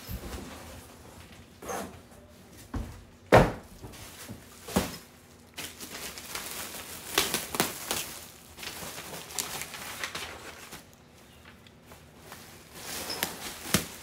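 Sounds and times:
plastic wrapping crinkling: 3.9 - 14.0.

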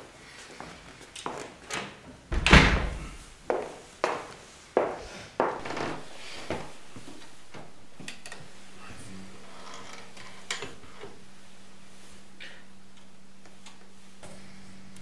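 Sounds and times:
low steady hum: 5.6 - 15.0.

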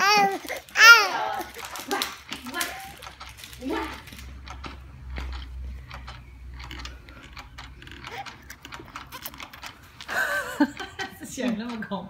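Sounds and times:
baby squealing: 0.0 - 1.5
baby chewing wet smacks: 0.0 - 10.1.

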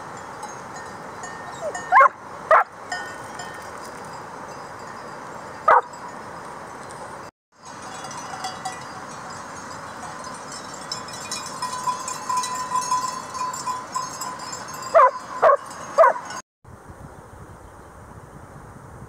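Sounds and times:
mountain stream rushing: 0.0 - 16.4
sheep bells clinking: 0.0 - 16.4
wind hiss: 0.0 - 19.0
dog barking: 1.9 - 2.7, 5.7 - 5.9, 14.9 - 16.3.

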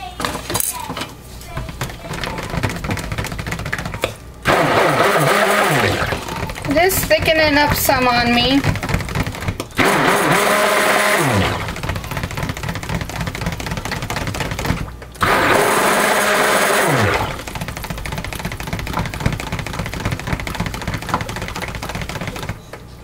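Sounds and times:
stick blender running: 1.5 - 22.7.

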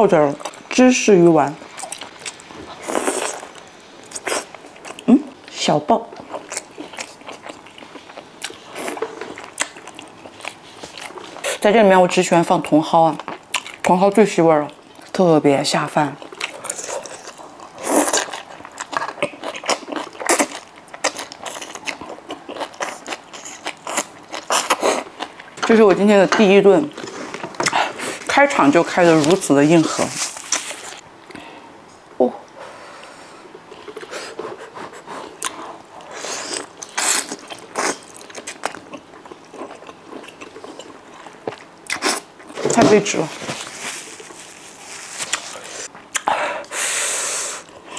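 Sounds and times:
wet chewing: 13.2 - 14.0, 16.2 - 25.7, 33.7 - 42.6.

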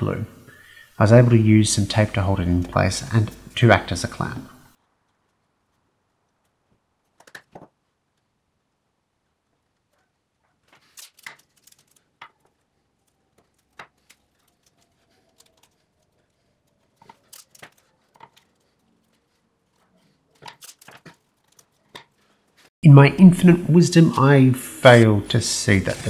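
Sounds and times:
masking tape tearing and crackling: 10.6 - 22.7.

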